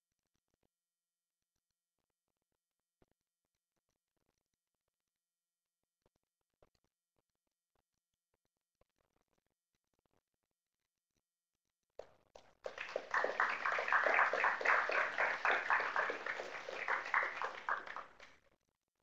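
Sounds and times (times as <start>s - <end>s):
audience applauding: 12.6s - 18.3s.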